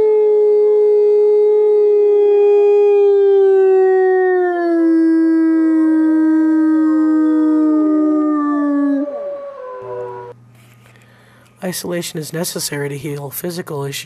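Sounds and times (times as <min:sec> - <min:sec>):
wolf howling: 0:00.0 - 0:10.4.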